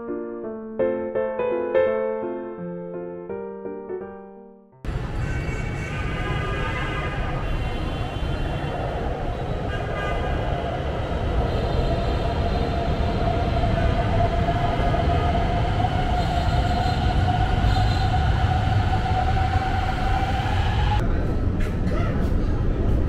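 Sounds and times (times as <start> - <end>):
train rumble: 8.4 - 23.0
train whine rising in pitch: 10.7 - 21.0.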